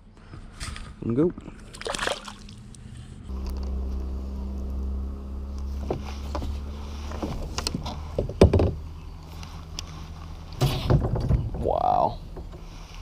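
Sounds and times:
low steady hum: 0:00.0 - 0:13.0
knocks and rubbing in plastic kayak: 0:05.8 - 0:08.8.

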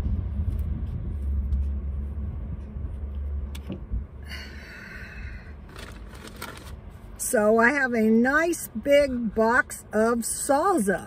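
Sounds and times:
low rumbling: 0:00.0 - 0:07.5.

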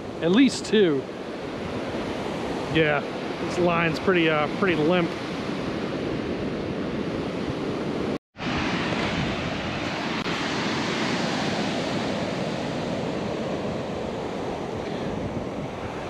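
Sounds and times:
ocean surf breaking on beach: 0:00.0 - 0:16.0
wind on microphone: 0:05.1 - 0:16.0.

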